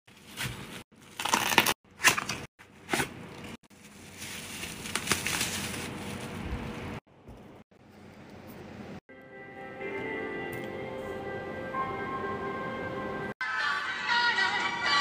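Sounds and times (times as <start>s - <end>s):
packaging crunching and crackling: 1.0s - 2.2s, 3.7s - 6.4s.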